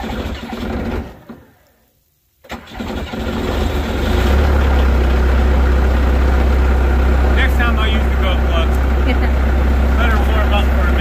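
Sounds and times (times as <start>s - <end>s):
starter motor cranking: 2.4s - 4.4s
diesel engine running: 2.8s - 11.0s.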